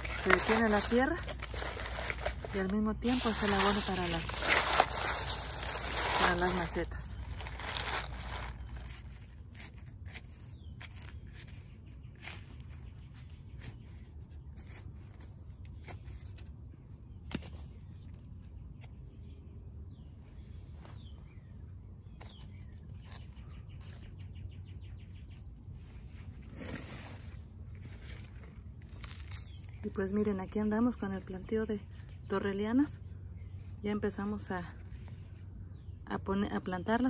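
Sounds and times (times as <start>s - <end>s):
soil and leaves scraping: 0.0s - 16.5s, 22.1s - 24.4s, 25.2s - 32.6s.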